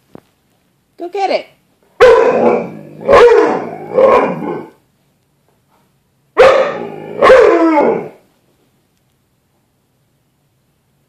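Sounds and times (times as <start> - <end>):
dog barking: 2.0 - 4.2, 6.4 - 8.1.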